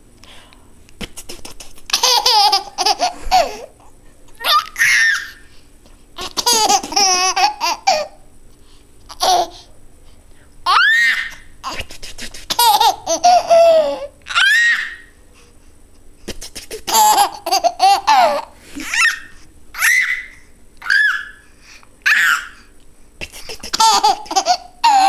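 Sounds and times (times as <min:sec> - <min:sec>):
adult making spitting noises: 0:01.0 - 0:01.9, 0:11.7 - 0:12.6, 0:16.2 - 0:16.9, 0:23.2 - 0:23.8
baby laughing: 0:01.0 - 0:03.8, 0:04.4 - 0:05.4, 0:06.2 - 0:08.2, 0:09.1 - 0:09.6, 0:10.7 - 0:15.1, 0:16.3 - 0:21.4, 0:22.0 - 0:22.6, 0:23.2 - 0:25.0.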